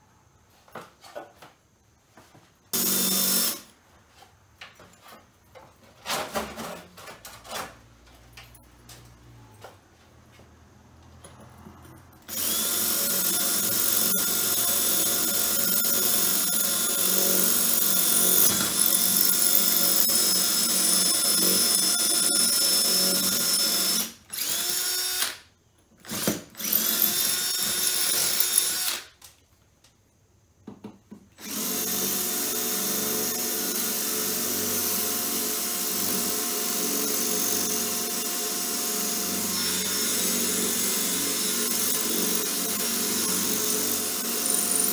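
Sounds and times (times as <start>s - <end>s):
power tool motor running: 2.8s - 3.6s, 12.3s - 25.4s.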